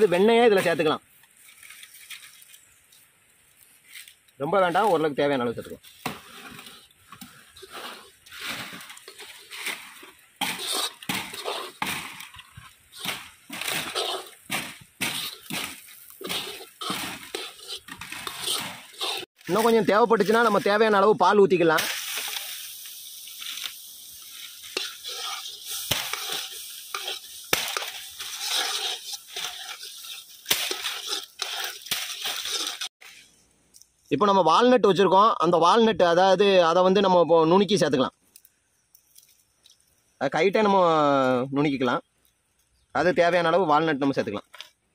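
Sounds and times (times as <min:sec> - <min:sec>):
utensil scraping a cooking pot: 0:06.1 - 0:19.4, 0:24.3 - 0:32.9.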